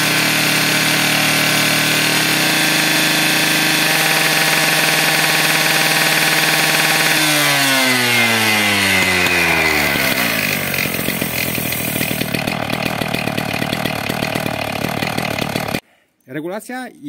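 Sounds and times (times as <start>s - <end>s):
power cutter engine revving down: 0.0s - 15.8s.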